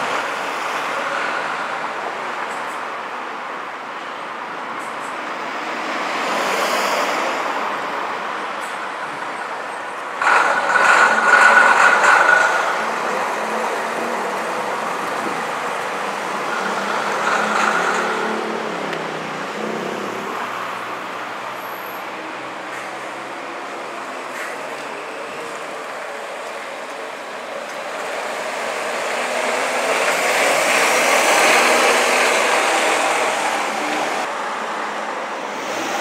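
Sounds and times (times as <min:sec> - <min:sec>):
diesel coach engine running: 0:07.7 - 0:36.0.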